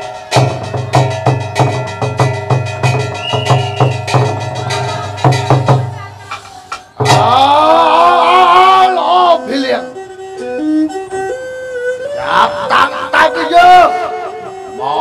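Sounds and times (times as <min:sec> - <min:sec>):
wood block strikes: 0:00.0 - 0:07.4
drum strikes: 0:00.0 - 0:07.8.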